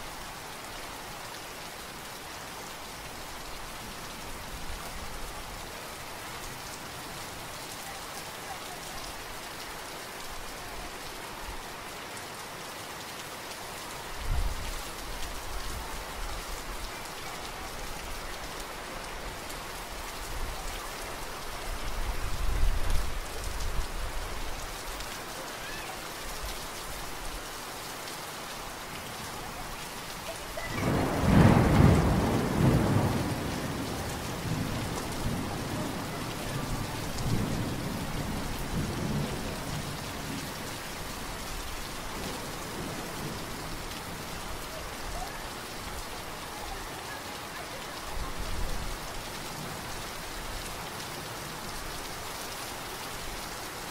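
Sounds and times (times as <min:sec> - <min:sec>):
steady rain falling: 0:00.0 - 0:53.9
thunder rumbling: 0:30.7 - 0:40.4.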